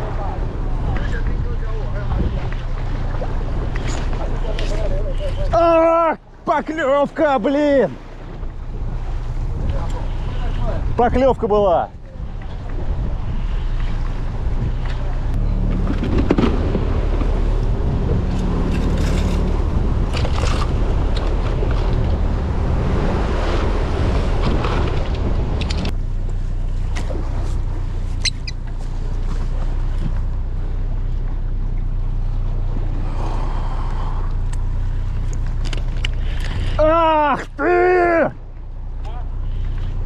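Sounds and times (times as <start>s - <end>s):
wind buffeting microphone: 0.0s - 6.5s, 7.9s - 26.2s
boat engine humming: 0.0s - 40.0s
sea noise: 0.0s - 40.0s.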